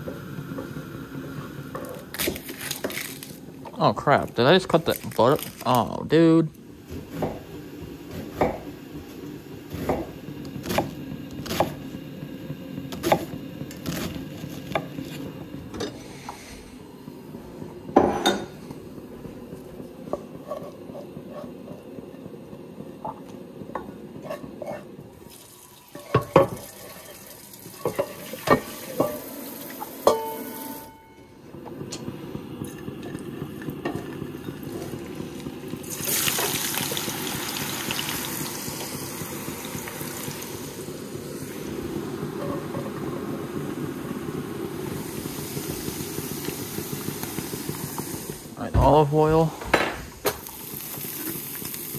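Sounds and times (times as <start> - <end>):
kitchen tap running: 25.1 - 30.8, 32.6 - 41.3, 44.8 - 51.9
dishes and utensils clattering: 25.9 - 27.2, 27.8 - 29.3, 29.9 - 31.2.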